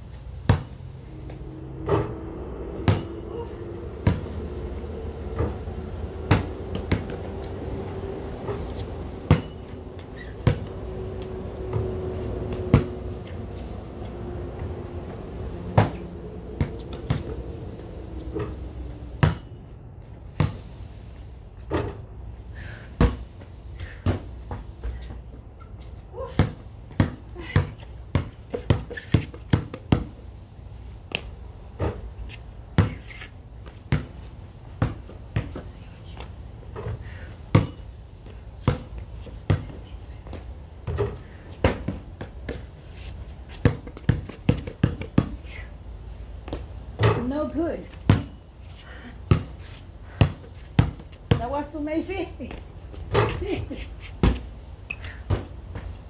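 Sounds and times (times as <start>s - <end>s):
basketball bouncing on concrete: 0.4s - 2.1s, 2.8s - 3.4s, 4.0s - 4.6s, 5.2s - 7.3s, 8.4s - 13.6s, 15.7s - 17.4s, 19.2s - 19.6s, 20.3s - 20.7s, 23.0s - 30.3s, 31.1s - 45.7s, 46.4s - 48.4s, 49.2s - 53.6s, 54.2s - 56.0s
basketball hitting backboard and rim: 0.5s - 0.8s, 2.8s - 3.2s, 4.0s - 4.3s, 6.3s - 7.2s, 9.2s - 9.7s, 10.3s - 10.7s, 12.5s - 13.0s, 19.2s - 19.6s, 23.0s - 23.3s, 26.4s - 30.2s, 33.9s - 34.1s, 36.8s - 37.8s, 40.8s - 42.0s, 43.6s - 45.4s, 46.5s - 47.3s, 48.0s - 48.4s, 54.2s - 54.5s, 55.2s - 55.9s.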